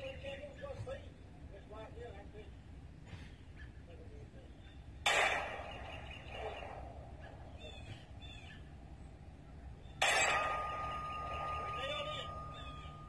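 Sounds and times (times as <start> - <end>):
faint chirping calls: 3.2 - 13.0
pistol shot: 5.0 - 7.8, 10.0 - 12.4.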